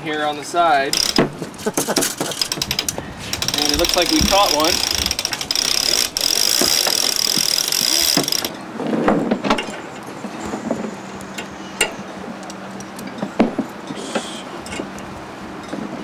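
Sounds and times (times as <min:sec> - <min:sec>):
winch ratcheting: 0:00.9 - 0:08.6
snap shackle metal clicks: 0:01.0 - 0:01.3, 0:01.9 - 0:08.5.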